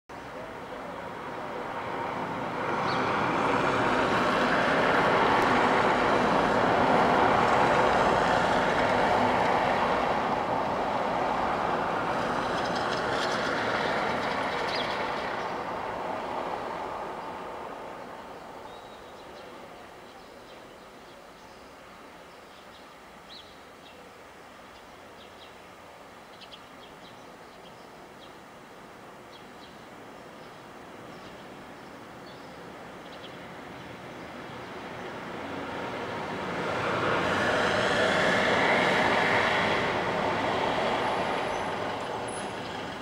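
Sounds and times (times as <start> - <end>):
vehicle passing by: 1.1 - 18.8, 34.4 - 43.0.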